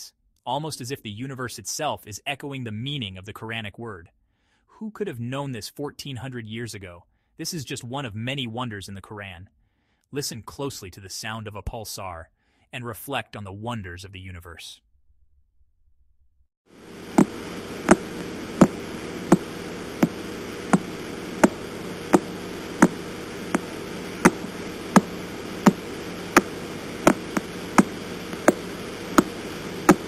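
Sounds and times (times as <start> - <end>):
sharp radio pulse clicks: 16.8 - 30.0
steady hiss and hum: 16.8 - 30.0.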